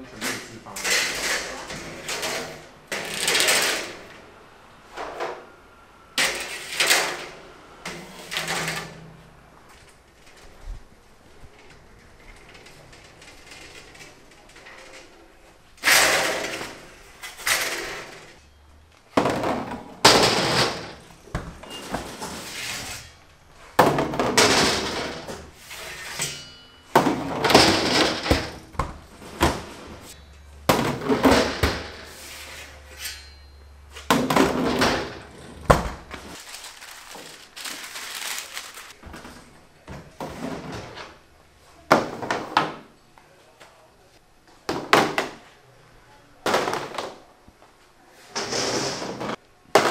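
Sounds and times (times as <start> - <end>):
metal trays clanking: 23.8 - 32.2.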